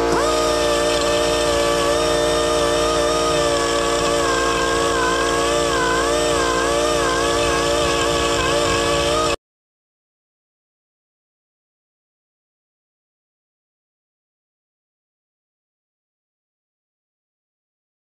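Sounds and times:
die grinder whining: 0.0s - 9.4s.

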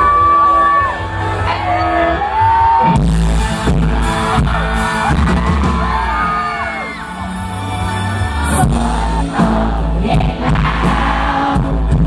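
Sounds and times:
live pop-rock band: 0.0s - 12.0s
person singing: 8.4s - 12.0s.

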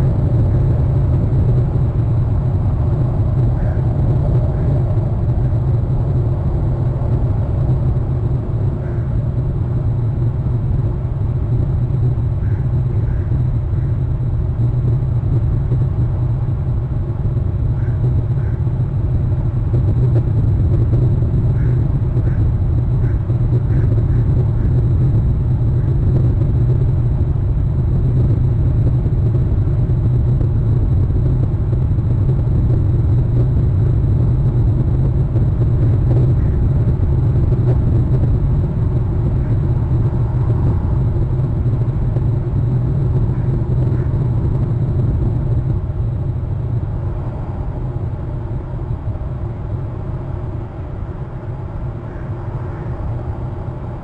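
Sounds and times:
steady low rumble: 0.0s - 54.0s.

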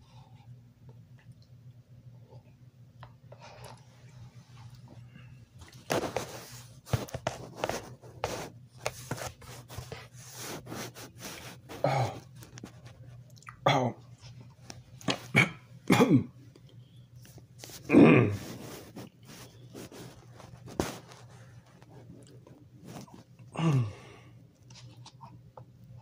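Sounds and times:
man's short vocal sounds: 17.9s - 18.4s.

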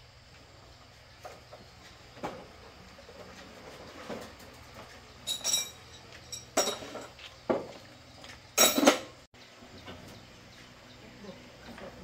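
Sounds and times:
metal tools clanking: 5.2s - 7.2s, 8.6s - 9.1s.

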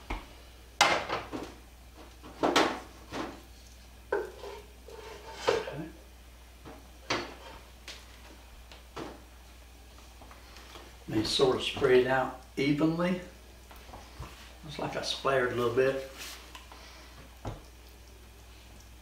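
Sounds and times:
wooden spoon scraping a pot: 4.1s - 5.9s, 7.1s - 7.7s.

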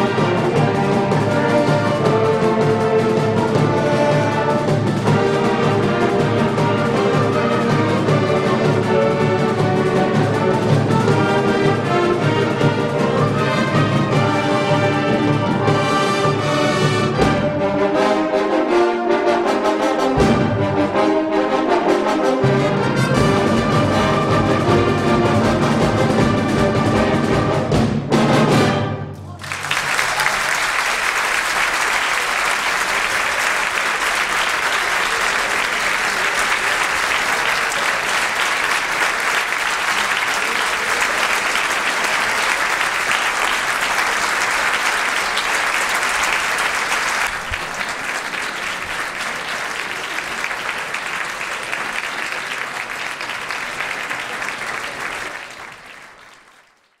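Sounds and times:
audience applauding: 29.3s - 57.0s.

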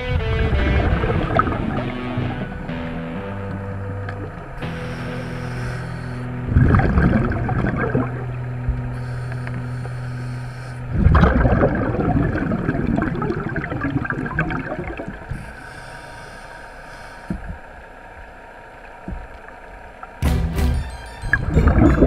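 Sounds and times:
underwater regulator bubbles: 0.0s - 15.6s
low hum: 0.0s - 22.0s
water hiss: 4.5s - 8.0s, 8.9s - 11.0s, 15.0s - 18.0s
faint clicks: 8.7s - 10.8s, 15.3s - 20.2s.

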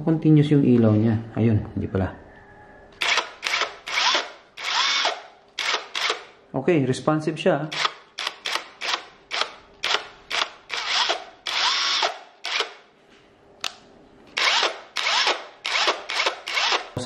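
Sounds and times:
impact wrench motor whirring: 3.0s - 6.4s, 7.7s - 12.9s, 14.4s - 17.0s.

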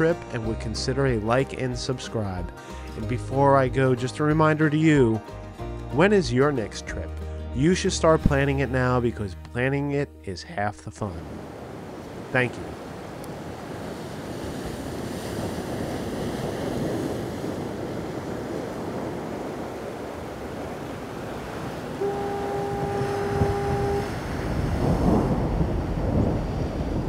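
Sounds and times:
ocean surf washing: 11.0s - 27.0s
foghorn blast: 21.9s - 25.0s.

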